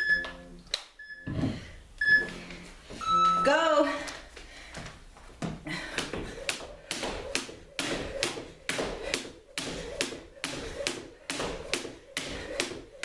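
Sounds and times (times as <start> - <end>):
jump rope slapping the floor: 5.9 - 13.0.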